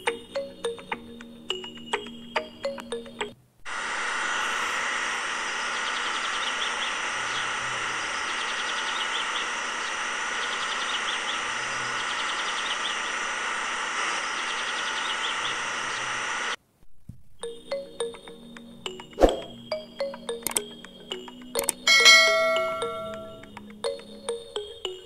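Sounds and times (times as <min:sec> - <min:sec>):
mechanical whirring hiss: 0:03.7 - 0:16.6.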